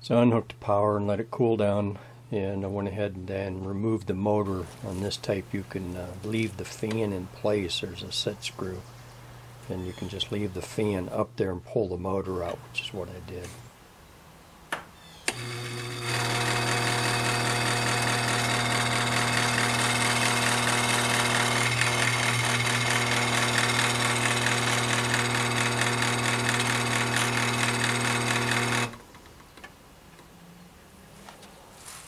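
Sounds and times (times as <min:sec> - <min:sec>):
electric motor humming harshly: 0:15.3 - 0:29.0.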